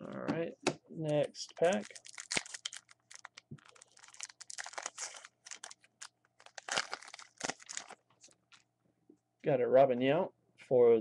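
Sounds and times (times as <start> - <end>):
plastic wrapper tearing and crinkling: 1.5 - 8.7.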